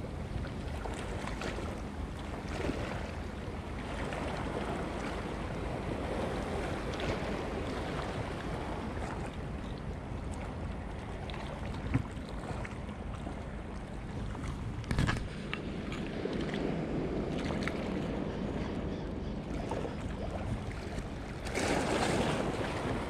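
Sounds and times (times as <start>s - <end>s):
wind buffeting microphone: 11.6s - 23.0s
waves washing against rocks: 21.0s - 23.0s.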